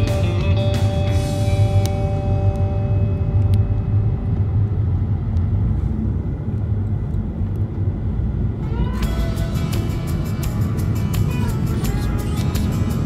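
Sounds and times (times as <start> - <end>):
car road rumble from inside: 0.0 - 13.0.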